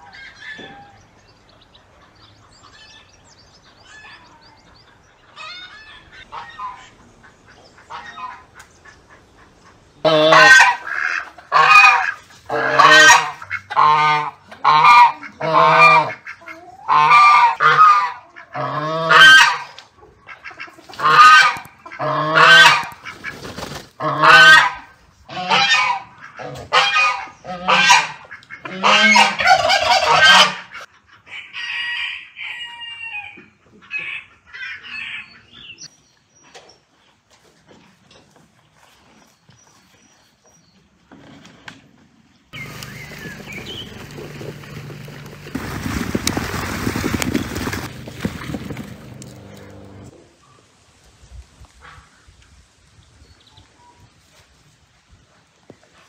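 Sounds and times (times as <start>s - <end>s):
geese honking loudly: 7.8s - 23.1s, 24.0s - 30.9s, 42.6s - 49.9s.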